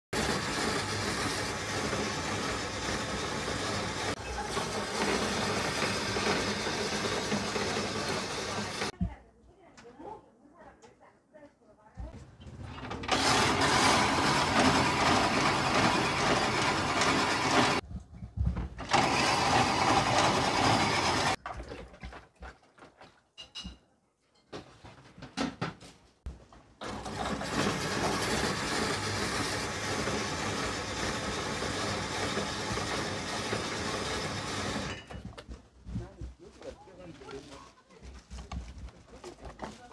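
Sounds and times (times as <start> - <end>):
ice shaving machine grinding whirr: 0.1 - 8.9, 12.8 - 17.8, 18.8 - 21.4, 26.8 - 35.2.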